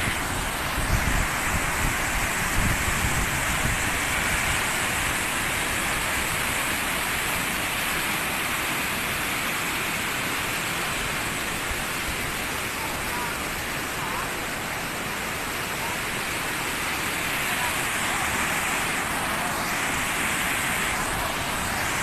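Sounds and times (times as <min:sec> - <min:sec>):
floodwater rushing: 0:00.0 - 0:22.0.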